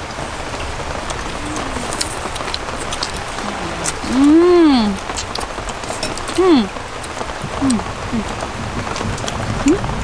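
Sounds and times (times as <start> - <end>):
rain hissing: 0.0 - 10.0
woman's drawn-out voiced sound: 3.4 - 5.0, 6.4 - 6.7.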